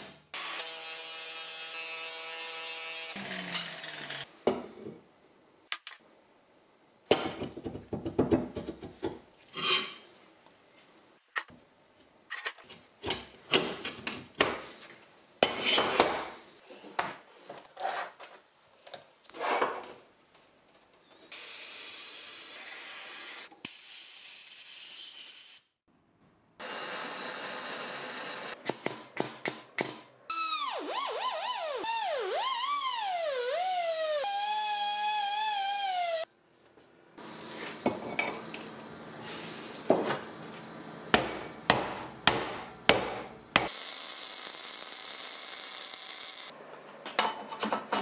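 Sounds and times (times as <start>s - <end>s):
welding hiss: 43.7s - 46.5s.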